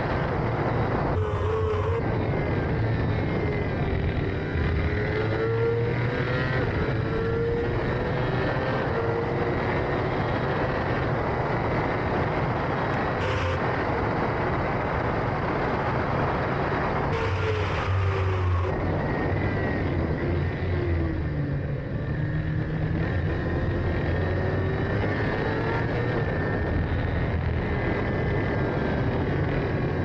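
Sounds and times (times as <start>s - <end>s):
racing engine revving: 1.0s - 12.0s, 17.0s - 20.8s.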